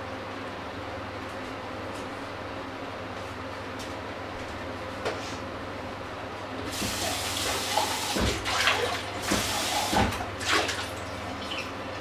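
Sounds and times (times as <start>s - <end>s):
tap running into a sink: 6.7s - 10.3s.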